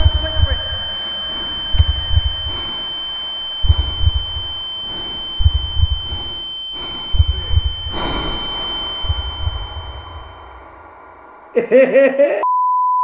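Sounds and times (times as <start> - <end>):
high-pitched electronic tone: 0.0 - 11.2
low thuds: 0.0 - 11.6.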